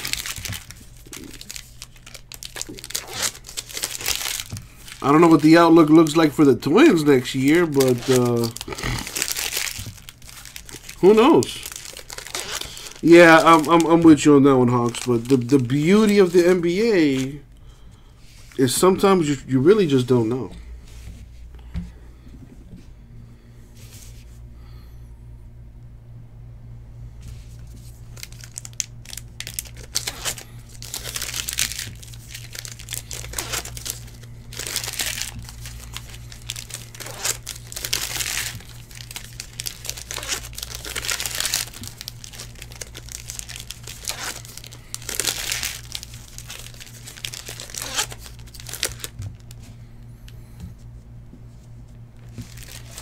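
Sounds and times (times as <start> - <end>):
foil wrappers tearing and crinkling: 0.0 - 17.4, 27.6 - 49.6, 52.2 - 53.0
low electrical hum: 0.0 - 53.0.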